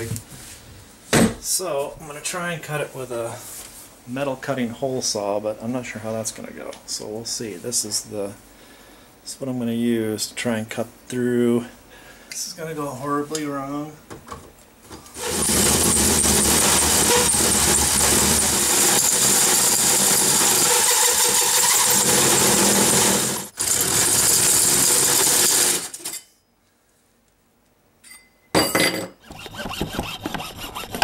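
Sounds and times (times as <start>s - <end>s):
hand saw cutting plastic pipe: 15.2s - 26.0s, 29.2s - 31.0s
power drill hole saw grinding metal: 15.2s - 26.1s.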